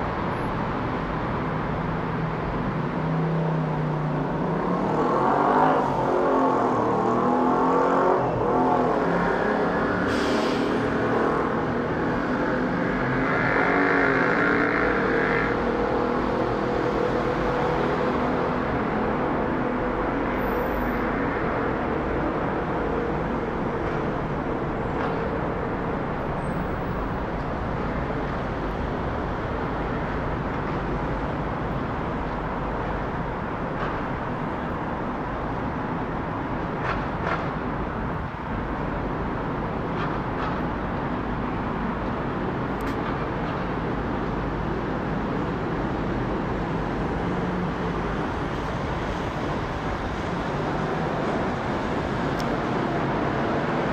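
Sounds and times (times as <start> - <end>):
jet engines roaring overhead: 27.3 - 53.9.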